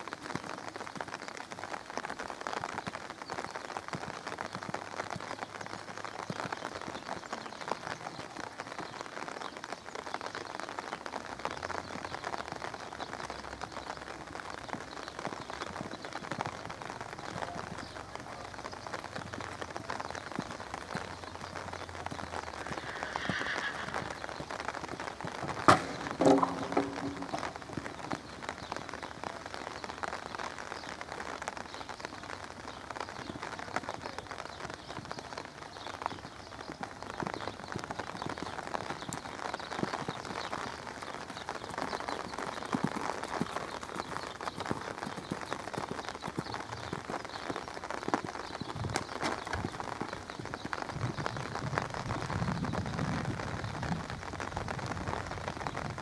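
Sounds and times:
steady outdoor hiss: 0.0 - 56.0
horse hoofbeats on sand: 14.8 - 29.2, 34.8 - 53.0
sharp knock on fence: 25.7 - 27.5.

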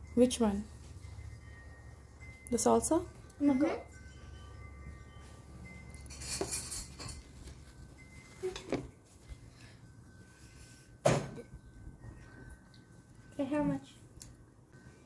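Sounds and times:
tableware clinking: 5.6 - 7.7.

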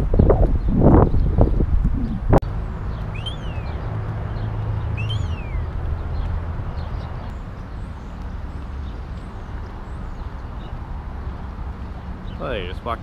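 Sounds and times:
steady low rumble: 0.0 - 13.0
bird whistle calls: 3.0 - 3.8, 4.9 - 5.7
faint bird chirps: 3.1 - 3.8, 5.0 - 5.7.

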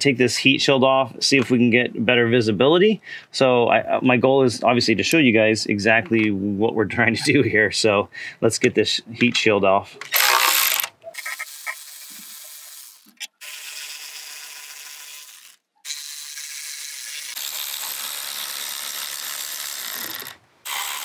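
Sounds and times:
electric ratchet spinning bolts: 10.1 - 21.0.

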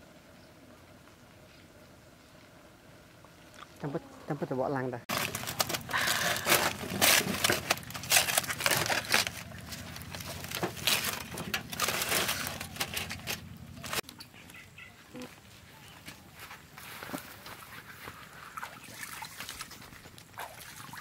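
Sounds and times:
aluminium foil crinkling and tearing: 5.1 - 14.1.

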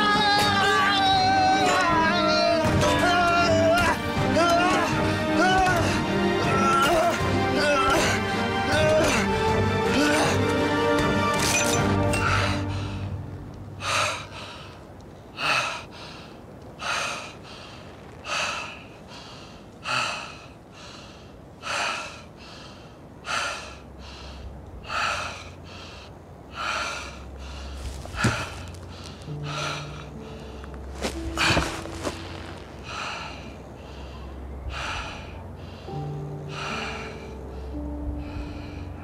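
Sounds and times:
man breathing hard: 32.8 - 39.0.

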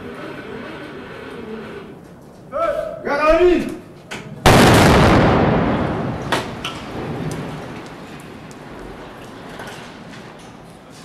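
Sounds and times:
explosion rumbling and crackling: 4.4 - 9.1
sharp crack: 4.5 - 8.7.

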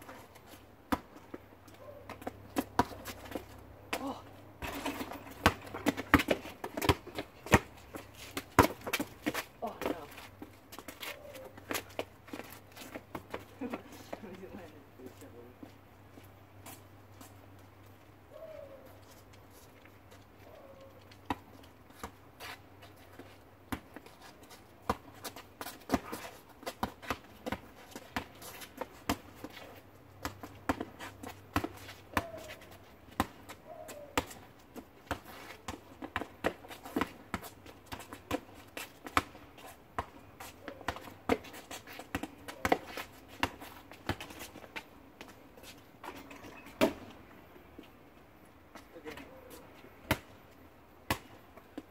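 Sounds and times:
basketball bouncing on asphalt: 0.9 - 13.5, 23.6 - 24.1, 24.8 - 45.4, 46.0 - 47.2, 50.0 - 51.9.

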